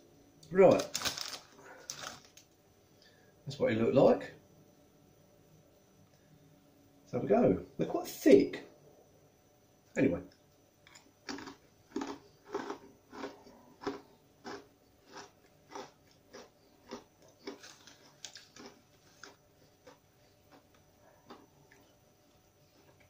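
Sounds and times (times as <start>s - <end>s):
chewing crunchy chips: 0.7s - 2.4s, 10.9s - 23.0s.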